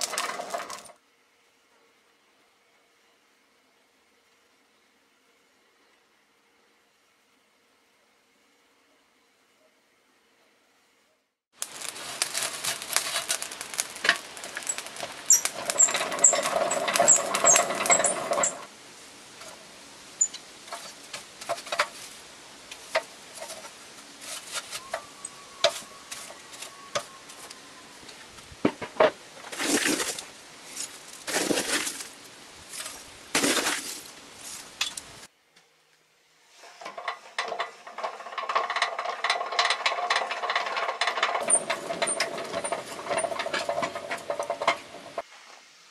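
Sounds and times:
charcoal fire crackling and popping: 0.0s - 0.9s, 11.5s - 35.3s, 36.8s - 45.3s.

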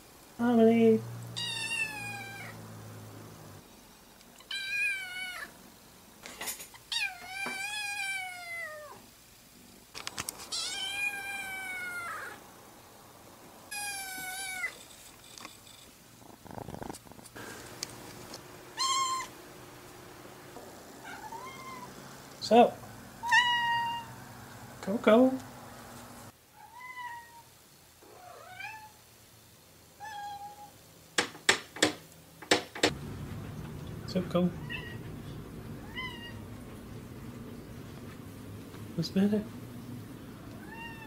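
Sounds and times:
kitten meowing: 1.4s - 2.6s, 10.5s - 12.4s, 18.8s - 19.3s, 21.0s - 21.9s, 23.2s - 24.1s, 34.6s - 35.0s, 35.8s - 36.4s, 40.6s - 41.0s.

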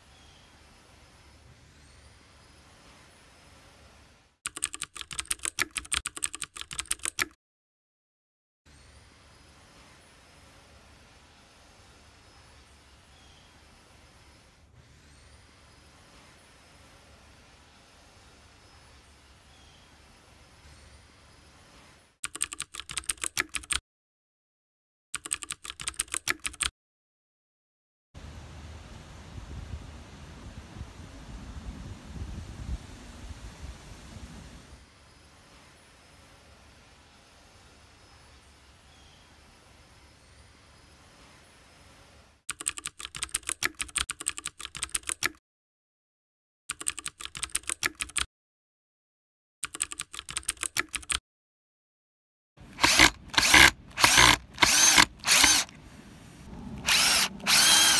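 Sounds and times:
rapid keyboard key clicks: 4.5s - 7.4s, 22.2s - 23.8s, 25.2s - 26.7s, 42.5s - 45.4s, 46.7s - 48.3s, 49.6s - 51.2s.

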